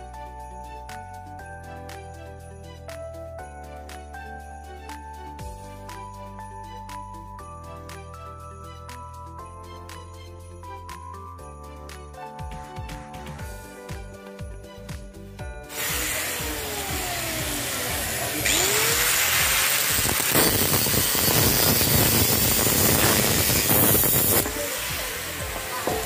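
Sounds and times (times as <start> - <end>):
angle grinder cutting steel: 15.7 - 26.0.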